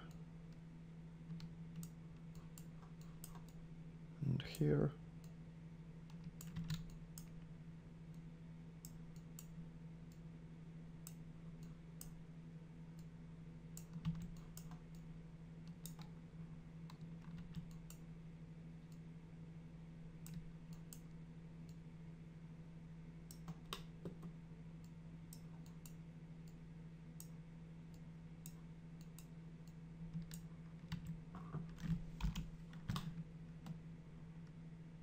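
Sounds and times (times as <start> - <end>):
steady low hum: 0.0 - 35.0
computer mouse and keyboard clicks: 13.8 - 15.0, 30.1 - 33.8.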